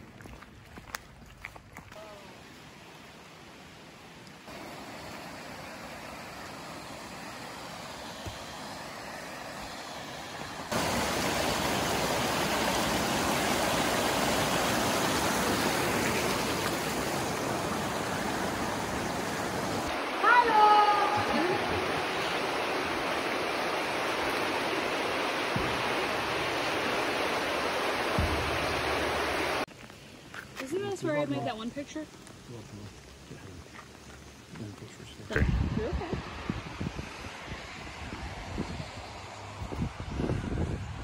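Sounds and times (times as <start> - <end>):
stream water rushing over rocks: 1.9 - 36.6.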